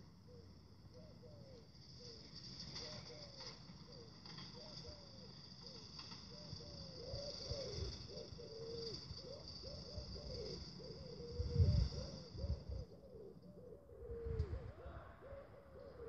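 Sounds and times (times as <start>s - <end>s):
pigeons cooing: 0.0s - 16.0s
steady high hiss: 1.6s - 12.9s.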